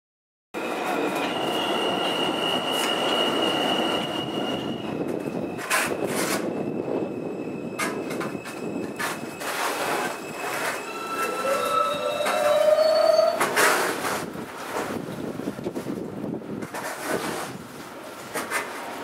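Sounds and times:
high wheel squeal: 0.6 - 13.9
subway train rumbling on rails: 0.6 - 19.0.

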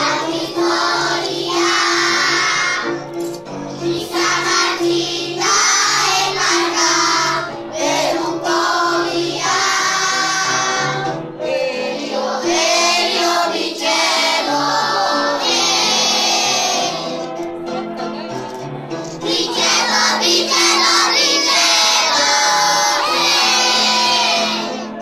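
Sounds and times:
children's choir singing: 0.0 - 3.0, 3.7 - 17.3, 19.2 - 25.0.

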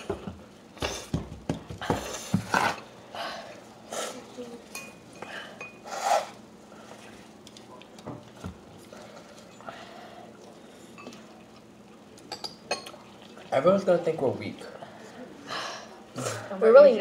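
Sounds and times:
people slurping noodles: 2.0 - 4.4, 5.2 - 7.3, 14.6 - 16.6.

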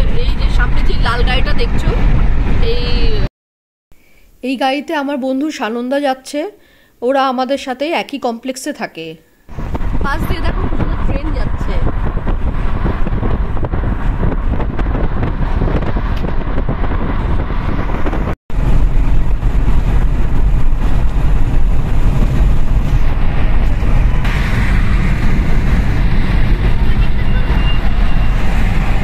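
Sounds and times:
car road and wind noise: 0.0 - 3.3, 9.5 - 29.0.

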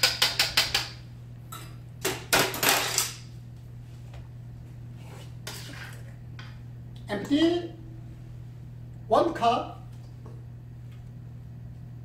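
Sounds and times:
steady low hum: 0.0 - 12.0
metal bowl and utensils clattering: 1.5 - 3.2.

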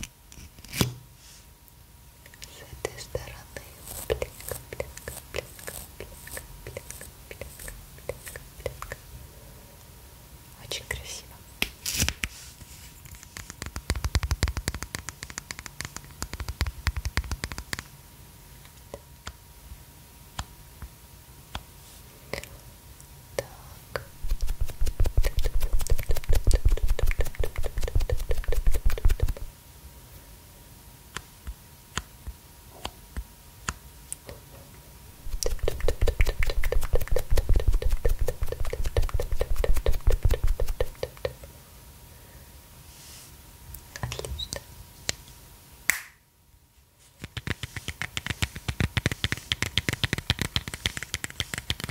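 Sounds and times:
makeup sponge dabbing microphone: 3.2 - 8.8, 24.0 - 29.5, 35.2 - 41.2, 47.2 - 51.9.

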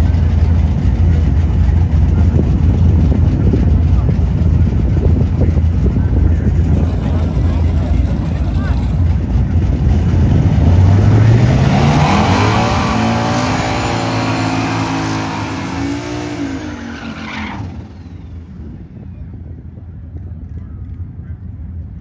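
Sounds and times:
race car accelerating hard: 6.3 - 18.8.

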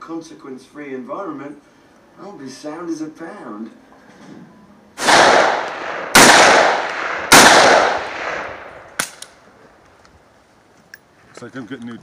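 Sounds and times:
rifle shots echoing: 5.0 - 9.4.

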